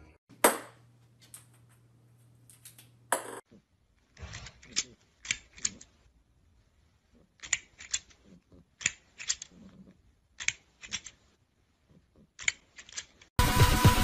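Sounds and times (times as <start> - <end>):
plastic toy jaws clacking: 4.1 - 6.0, 7.2 - 11.4, 12.0 - 13.3.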